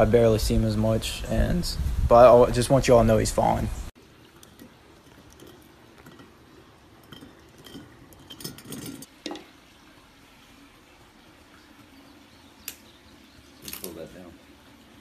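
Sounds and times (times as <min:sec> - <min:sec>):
faint clinks and knocks: 0:04.3 - 0:09.5.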